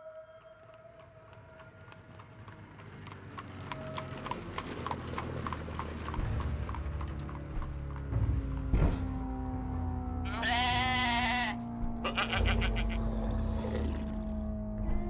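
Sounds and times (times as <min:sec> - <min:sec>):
hooves clip-clopping: 0:00.4 - 0:08.7
low drone: 0:11.4 - 0:15.0.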